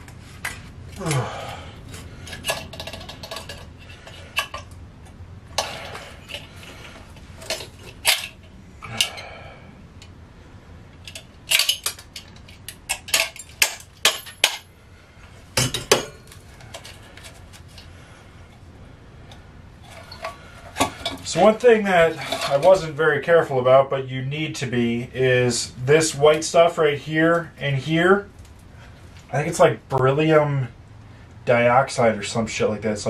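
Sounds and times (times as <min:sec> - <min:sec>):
metal parts clinking: 0:00.5 - 0:04.8, 0:07.4 - 0:09.3, 0:11.0 - 0:14.7.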